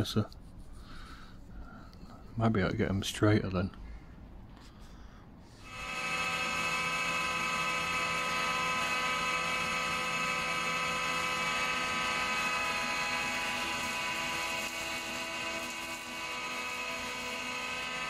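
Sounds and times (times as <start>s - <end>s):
planer-jointer whining: 5.6s - 18.0s.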